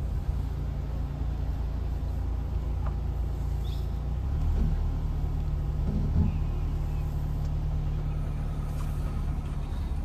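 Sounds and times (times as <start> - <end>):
car driving drone from inside: 0.0 - 10.0
faint high chirp: 3.6 - 4.0.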